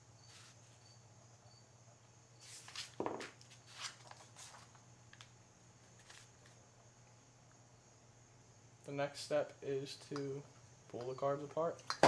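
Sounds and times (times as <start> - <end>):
steady low hum: 0.0 - 12.0
handling rustles and light knocks: 2.4 - 6.6.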